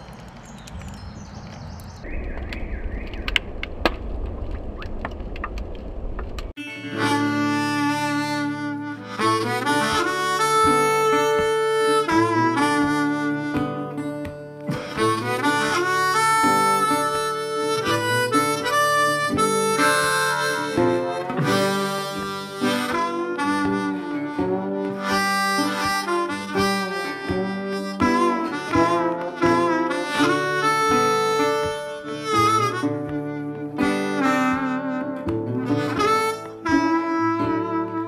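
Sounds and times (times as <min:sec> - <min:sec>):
instrumental background music: 0:06.6 - 0:38.0.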